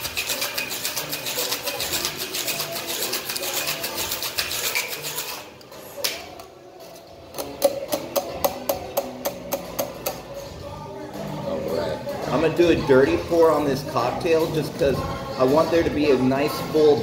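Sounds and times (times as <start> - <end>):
ice rattling in cocktail shaker: 0.0 - 5.4.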